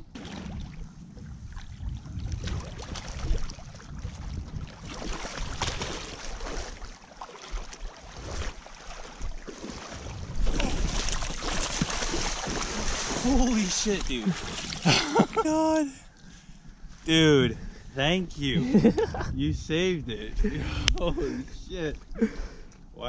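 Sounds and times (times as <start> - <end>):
wind buffeting microphone: 0.0 - 6.9, 9.1 - 14.4, 16.6 - 22.1
fish thrashing in splashing water: 1.6 - 15.0.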